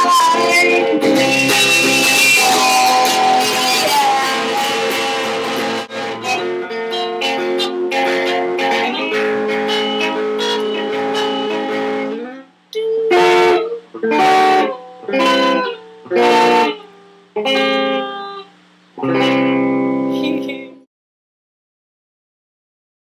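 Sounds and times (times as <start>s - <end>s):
guitar chords strummed: 0.0s - 20.9s.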